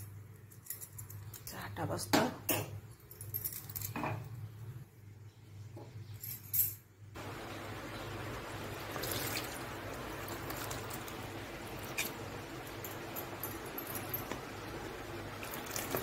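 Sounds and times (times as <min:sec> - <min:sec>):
water splashing into plastic basin: 0:08.9 - 0:09.6.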